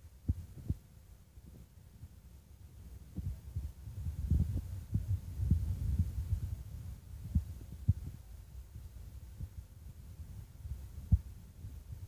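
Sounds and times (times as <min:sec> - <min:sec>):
wind buffeting microphone: 0:03.0 - 0:12.0.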